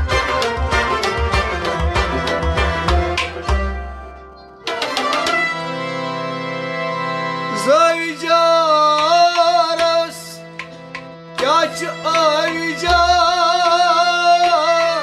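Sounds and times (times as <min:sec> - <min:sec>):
harmonium chord: 0:00.0 - 0:13.7
man singing: 0:07.5 - 0:10.5, 0:11.4 - 0:15.0.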